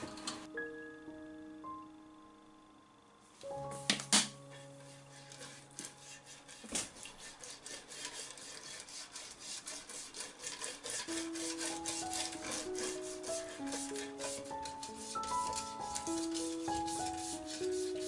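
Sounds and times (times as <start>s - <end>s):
brush scratching on metal grill: 4.6s - 18.0s.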